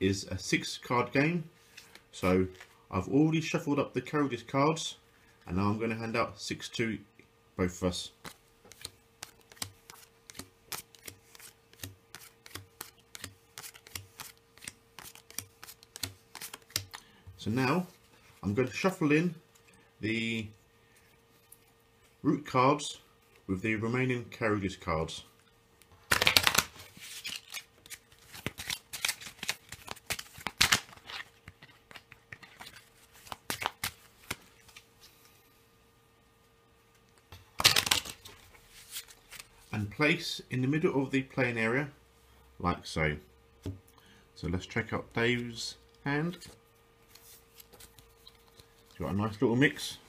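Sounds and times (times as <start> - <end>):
playing cards slapping on table: 8.2 - 17.0, 26.0 - 34.8, 37.2 - 38.3.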